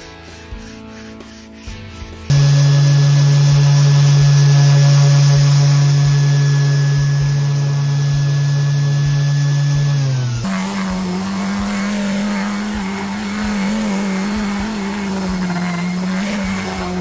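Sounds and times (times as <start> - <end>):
orbital sander on wood: 0.0 - 17.0.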